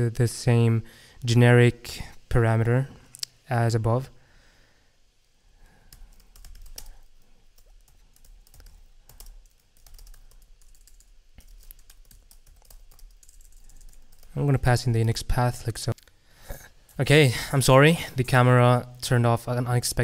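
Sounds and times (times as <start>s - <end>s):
typing on computer keyboard: 5.9s - 14.4s.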